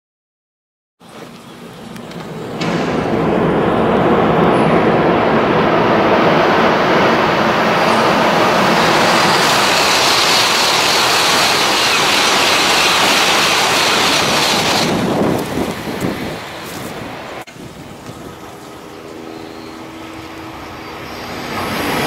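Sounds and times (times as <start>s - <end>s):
high-speed train passing: 1.0s - 22.0s
high hiss: 7.8s - 15.0s.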